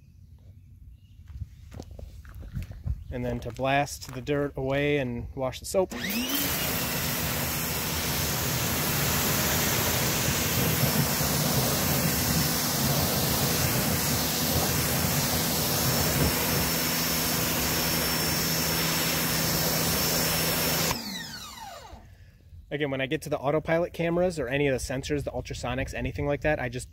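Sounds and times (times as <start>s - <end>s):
pressure washer motor humming: 5.9s - 22.1s
water jet hissing: 6.4s - 21.0s.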